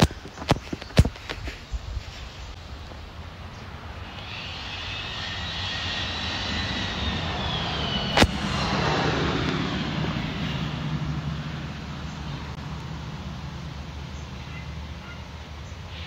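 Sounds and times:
rushing engine noise: 2.5 - 16.0
high whine gliding downward: 2.6 - 14.0
sharp click: 8.1 - 8.7.

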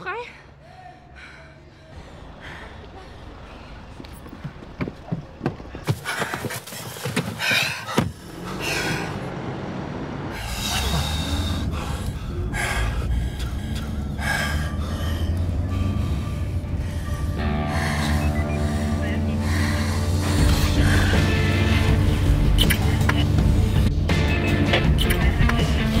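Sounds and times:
car cabin rumble: 2.0 - 9.2.

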